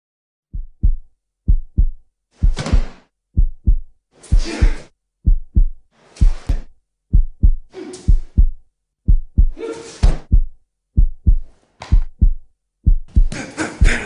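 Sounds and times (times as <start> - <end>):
heartbeat thumps: 0.5 - 14.0.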